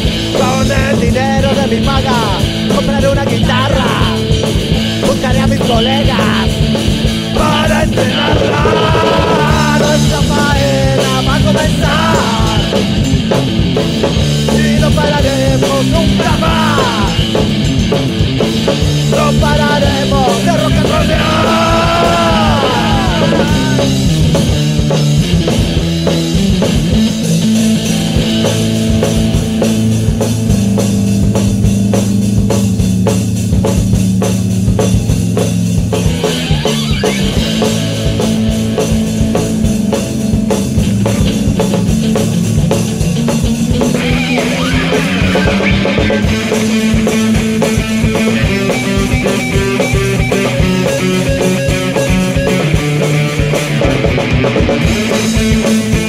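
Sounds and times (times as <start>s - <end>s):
instrumental rock music: 0.0s - 56.0s.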